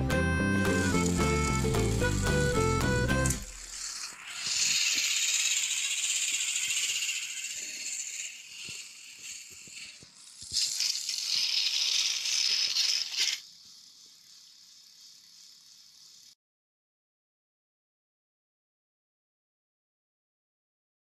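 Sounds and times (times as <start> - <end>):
toy train motor whirring: 0.0 - 16.4
toy train wheels clicking: 0.1 - 16.4.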